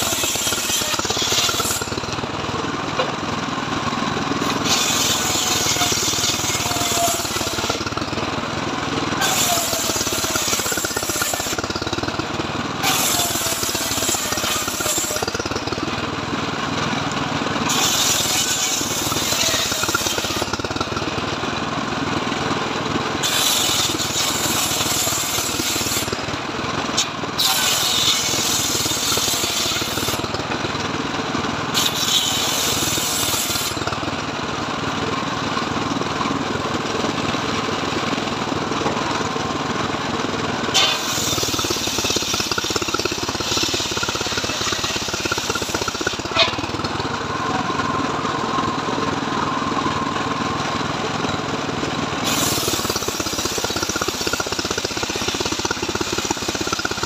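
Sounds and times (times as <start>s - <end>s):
circular saw ripping boards: 0.0s - 2.0s, 4.4s - 8.1s, 9.2s - 12.1s, 12.8s - 15.6s, 17.7s - 20.7s, 23.2s - 26.1s, 27.0s - 30.3s, 31.7s - 33.9s, 40.7s - 46.7s, 52.2s - 57.0s.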